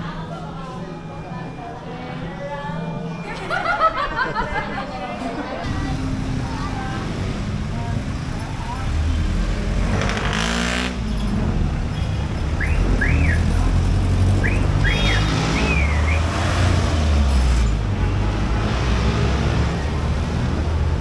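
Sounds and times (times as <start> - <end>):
street traffic rumble: 0.0 - 21.0
vehicle engine passing by: 5.7 - 21.0.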